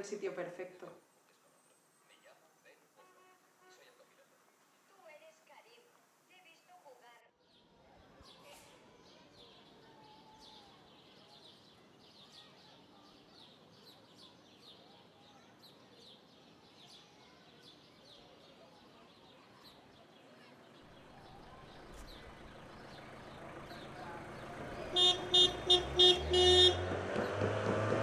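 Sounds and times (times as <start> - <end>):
faint outdoor background noise: 0.0 - 28.0
small birds chirping: 5.1 - 27.6
vehicle rumble: 20.7 - 28.0.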